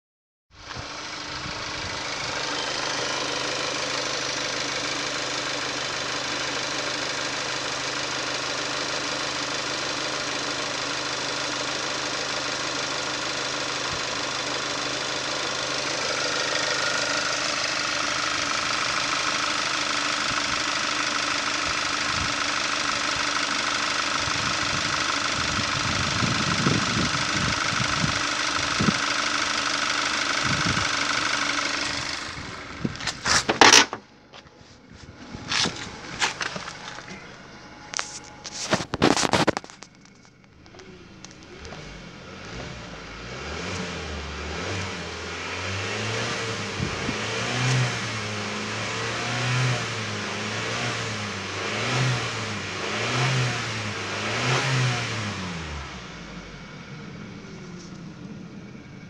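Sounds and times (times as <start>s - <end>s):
car engine idling: 0.6s - 59.0s
low rumbles: 24.2s - 44.0s
steady high whine: 27.4s - 42.4s.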